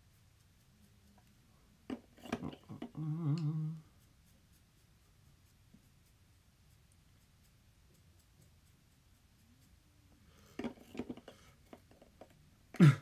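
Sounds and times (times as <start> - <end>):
small clicks and scrapes: 1.0 - 3.5, 5.5 - 12.4
man humming: 2.7 - 3.9.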